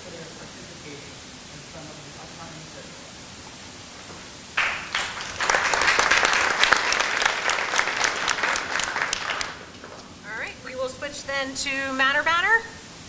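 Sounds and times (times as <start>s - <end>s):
applause: 4.6s - 10.1s.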